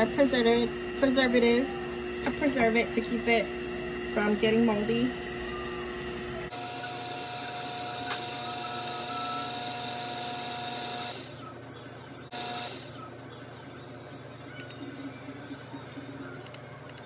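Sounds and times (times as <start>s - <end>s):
electric hand mixer whining: 0.0s - 11.4s, 12.3s - 13.0s.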